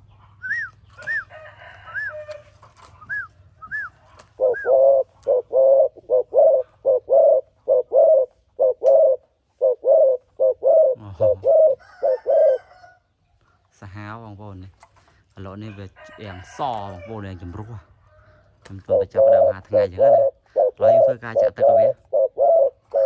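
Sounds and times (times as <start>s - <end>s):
dove cooing: 0.0s - 13.0s, 16.3s - 23.0s.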